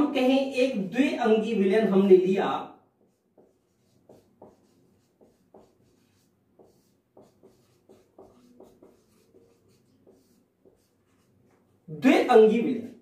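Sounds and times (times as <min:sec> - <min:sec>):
marker pen writing on whiteboard: 0:02.9 - 0:13.0.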